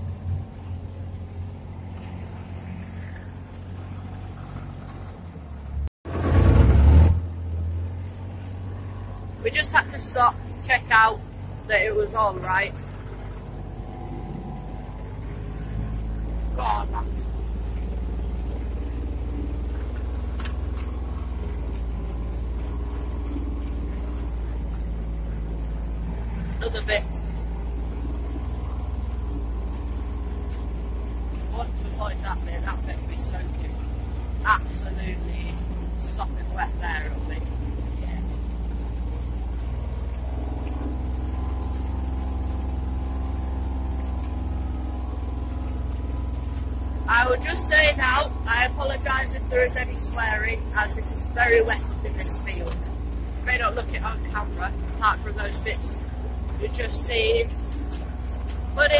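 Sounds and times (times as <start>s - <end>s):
vehicle engine droning: 0.0s - 58.9s
light clicks and rattles: 12.4s - 54.1s, 54.7s - 58.9s.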